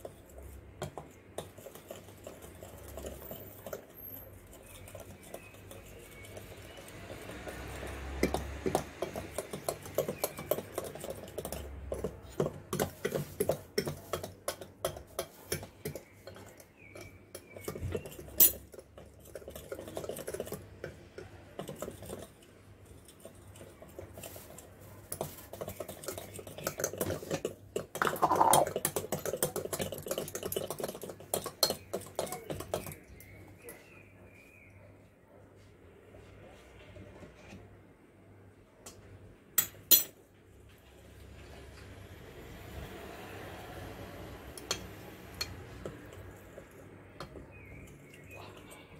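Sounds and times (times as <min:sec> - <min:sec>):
whisk clinking against glass bowl: 0:28.0 - 0:33.0.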